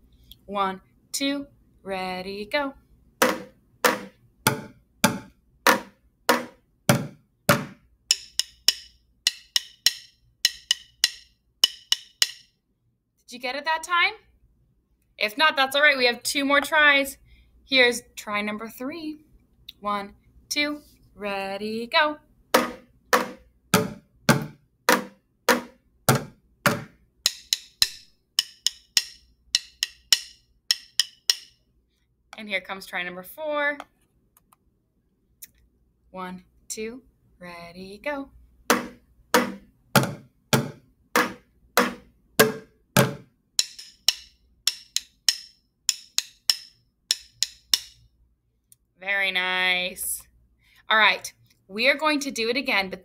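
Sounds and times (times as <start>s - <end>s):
drumsticks hitting bucket drum: 3.2s - 12.4s, 22.6s - 31.6s, 38.7s - 48.0s.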